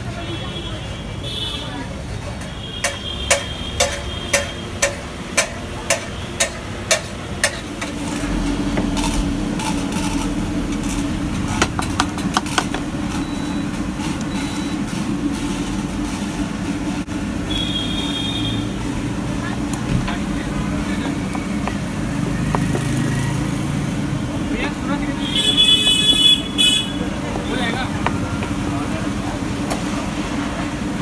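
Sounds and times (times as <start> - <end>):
induction cooktop humming: 2.2 - 31.0
sharp metallic knocks: 2.8 - 7.6.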